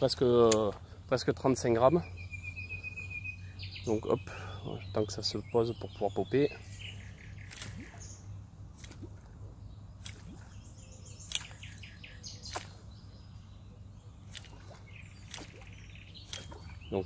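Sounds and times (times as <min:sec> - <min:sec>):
small birds chirping: 0:00.0 - 0:17.0
lure popping on water: 0:10.0 - 0:10.5, 0:14.3 - 0:15.7.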